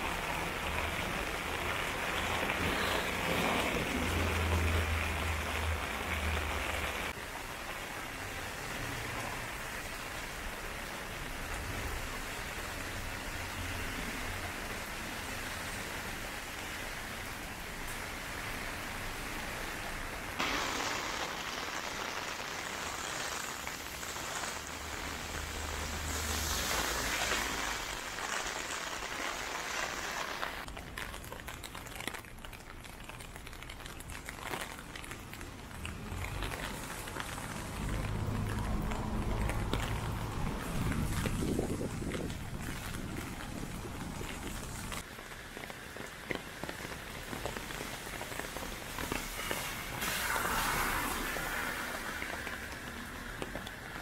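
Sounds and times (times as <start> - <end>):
heavy rain on wet pavement: 0.0 - 54.0.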